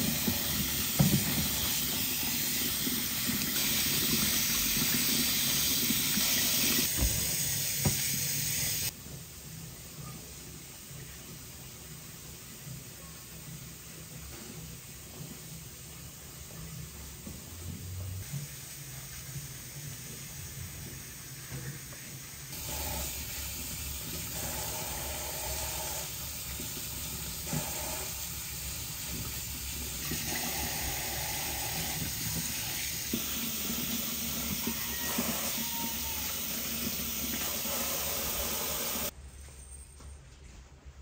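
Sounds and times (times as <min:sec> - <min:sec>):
running water hiss: 0:18.2 - 0:39.1.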